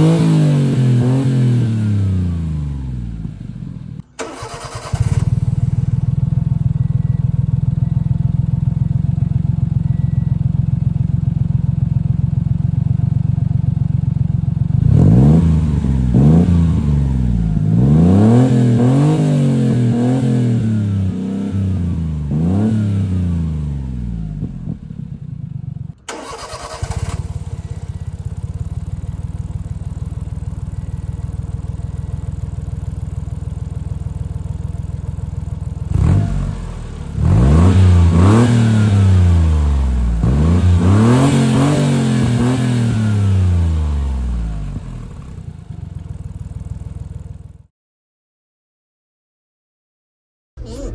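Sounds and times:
truck engine revving: 4.2s - 5.4s, 26.1s - 27.2s.

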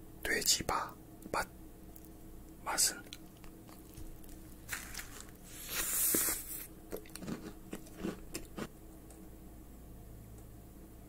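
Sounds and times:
chewing with crackles: 3.0s - 8.7s
macaron shell crunch: 3.7s - 8.7s.

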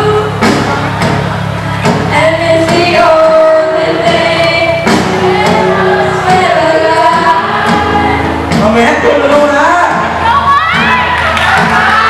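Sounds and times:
group singing with backing music: 1.9s - 12.0s.

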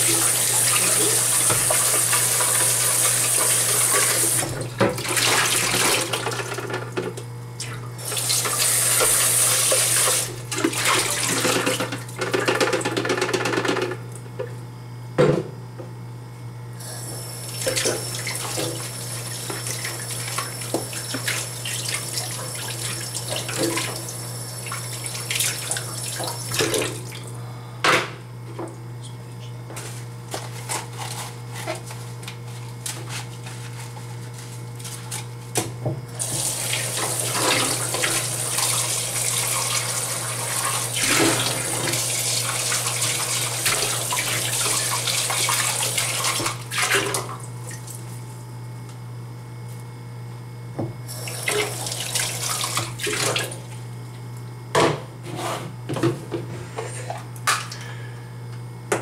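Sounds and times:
steady low hum: 14.1s - 36.3s
sponge scrubbing plastic basket: 29.8s - 35.6s.

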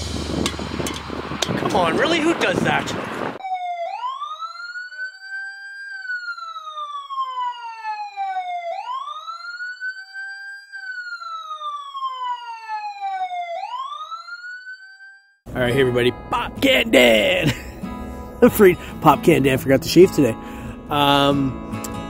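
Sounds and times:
police siren wailing: 1.9s - 15.4s.

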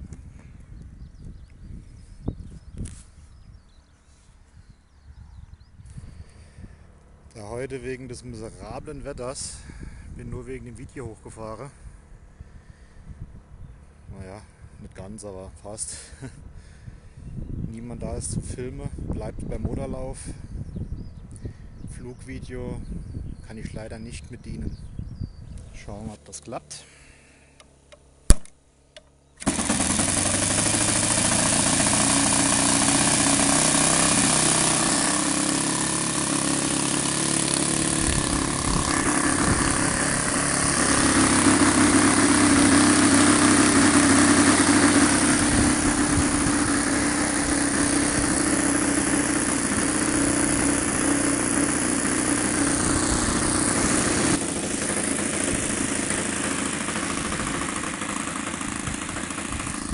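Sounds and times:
sharp click: 27.6s - 29.5s
model plane engine running: 29.1s - 59.9s.

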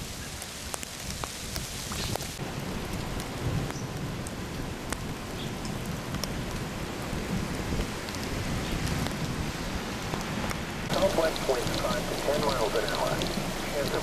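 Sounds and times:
heavy rain: 0.0s - 14.0s
raindrops ticking: 0.3s - 9.3s, 10.0s - 14.0s
low rumble: 10.9s - 14.0s.

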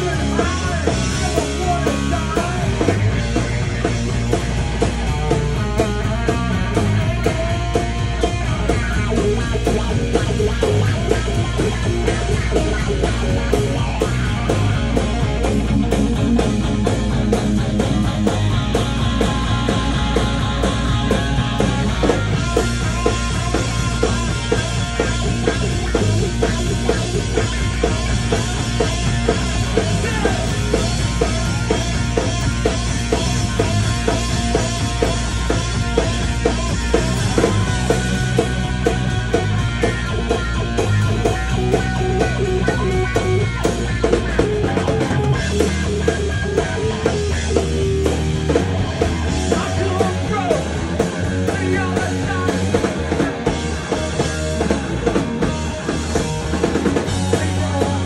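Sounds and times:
drum kit steady beat: 0.0s - 58.0s
electric guitar: 0.0s - 58.0s
live rock band playing: 0.0s - 58.0s.

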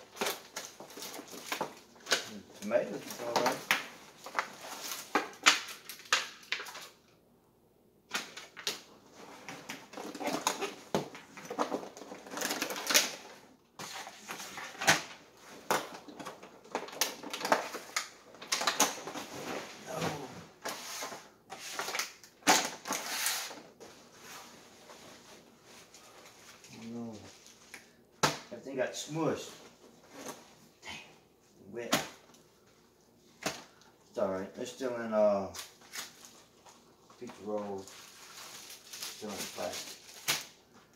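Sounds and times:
plastic packaging crinkling: 0.0s - 7.0s, 35.5s - 40.9s.

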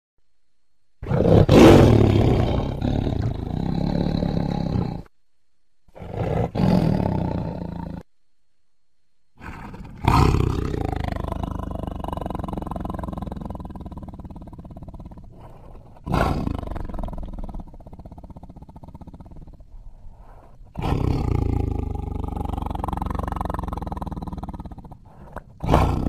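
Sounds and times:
tiger roaring: 1.0s - 5.1s, 5.9s - 8.1s, 9.4s - 26.0s.

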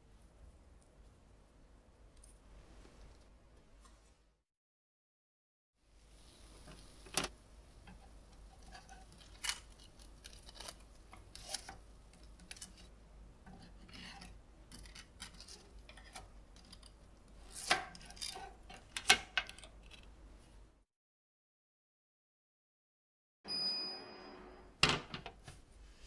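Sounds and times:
metal spatula scraping baking tray: 13.5s - 16.2s.

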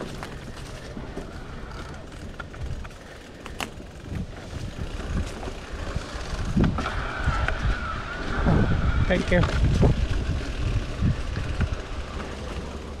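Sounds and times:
bike clicks and rattles: 0.0s - 13.0s
bike tyres rumbling on dirt: 0.0s - 13.0s
wind on microphone: 3.8s - 12.1s.

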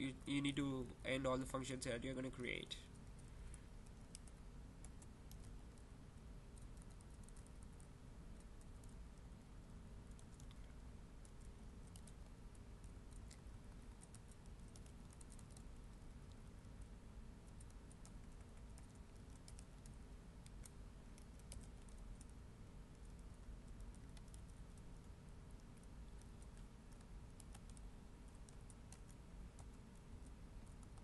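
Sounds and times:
low steady hum: 0.0s - 31.0s
typing on computer keyboard: 3.8s - 5.8s, 6.6s - 9.0s, 10.1s - 15.7s, 17.4s - 22.3s, 23.0s - 31.0s.

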